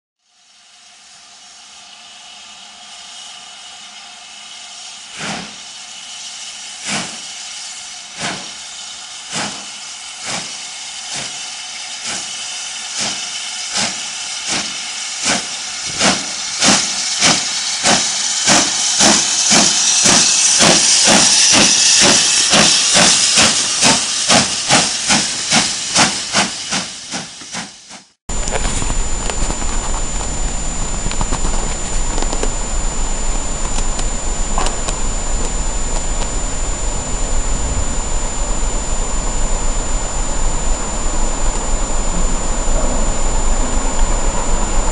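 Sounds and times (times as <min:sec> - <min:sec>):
steam locomotive exhaust chuffs: 0:00.3 - 0:28.9
steam hissing: 0:00.3 - 0:33.0.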